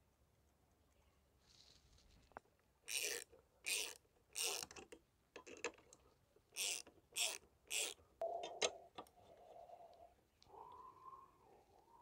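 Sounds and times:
ratchet wrench clicking: 2.9s - 4.7s, 6.6s - 8.0s.

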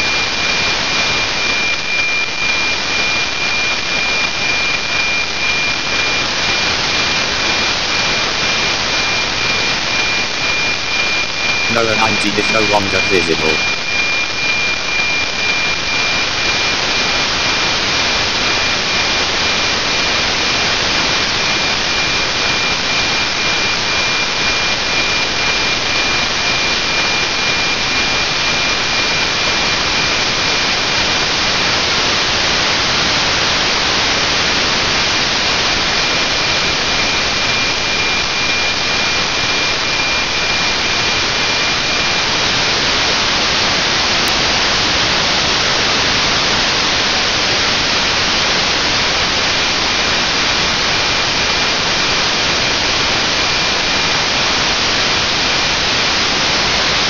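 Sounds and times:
radio receiver hiss: 11.6s - 13.8s.

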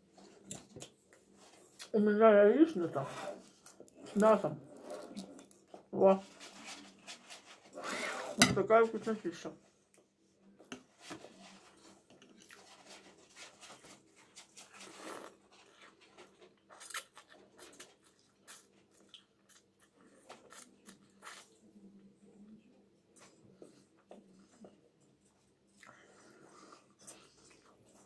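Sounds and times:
person chewing: 3.6s - 5.8s, 16.6s - 21.6s.

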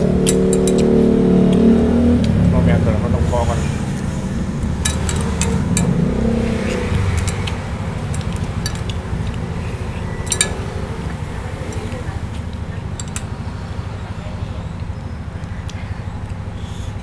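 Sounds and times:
low rumble: 0.0s - 15.4s
chewing: 4.0s - 13.4s.

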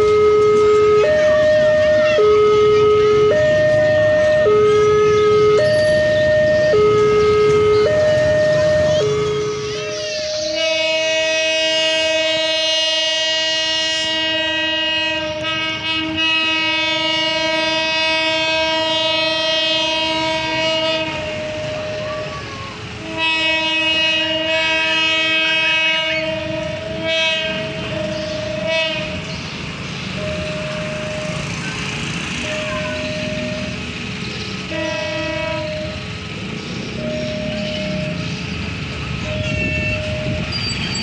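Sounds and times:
level crossing warning siren: 0.0s - 41.0s
train horn blasts: 8.8s - 22.0s, 23.0s - 29.3s, 34.7s - 36.1s, 39.2s - 40.6s.

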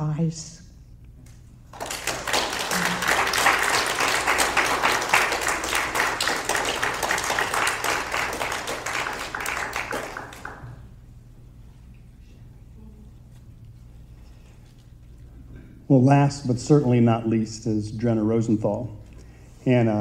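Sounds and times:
audience applauding: 1.7s - 10.9s.

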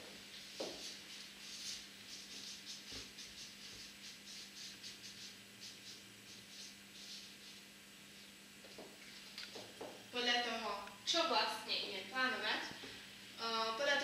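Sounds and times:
marker scratching on paper: 0.3s - 7.7s.

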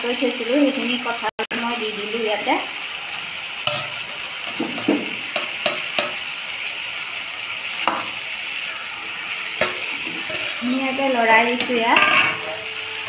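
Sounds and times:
curry sizzling in pan: 0.0s - 13.0s
spatula scraping pan: 7.8s - 13.0s.

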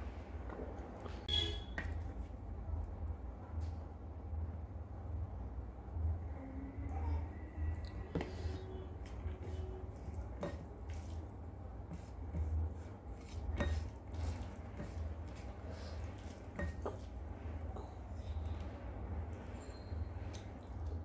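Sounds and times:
wet squelching of rice: 8.3s - 19.4s.

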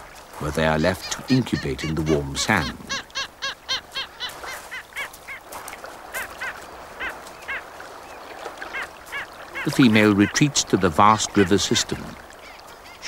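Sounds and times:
flock of birds calling: 0.4s - 5.4s, 6.1s - 13.0s.

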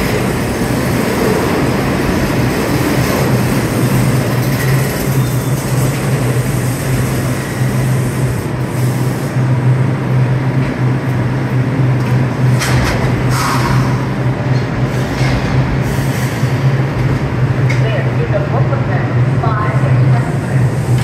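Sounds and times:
train equipment low hum: 0.0s - 21.0s
station noise: 9.8s - 21.0s.

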